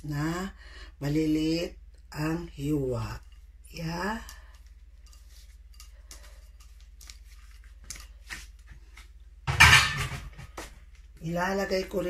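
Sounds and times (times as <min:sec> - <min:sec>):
faint clicks and scrapes: 0:03.2 - 0:09.2.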